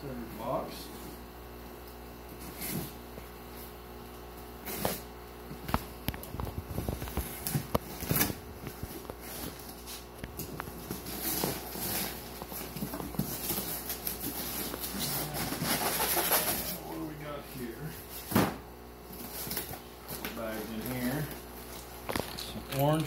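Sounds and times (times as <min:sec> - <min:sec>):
steady low hum: 0:00.0 - 0:23.0
cardboard flaps rustling: 0:05.7 - 0:16.8.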